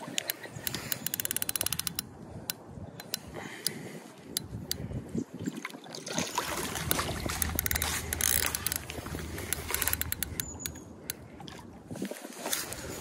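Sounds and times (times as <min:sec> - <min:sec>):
fishing reel clicking and rattling: 0:00.1 - 0:03.8, 0:06.8 - 0:11.2
low steady hum: 0:06.0 - 0:12.0.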